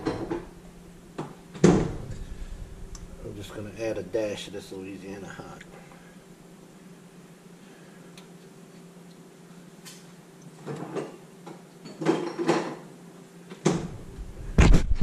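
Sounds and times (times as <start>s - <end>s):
kitchen knocks and rattles: 0.0s - 0.5s, 11.9s - 12.8s
steady low hum: 0.0s - 10.6s, 13.0s - 15.0s.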